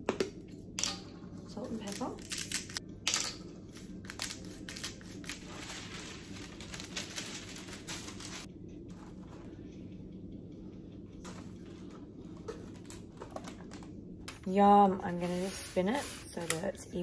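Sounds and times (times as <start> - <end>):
faint steady hum: 0.0 - 17.0
baking paper rustling: 4.1 - 9.3.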